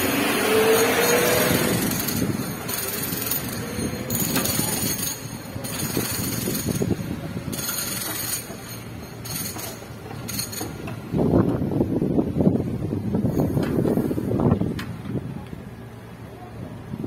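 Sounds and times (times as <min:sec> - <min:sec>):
cars driving past: 0:00.0 - 0:05.8.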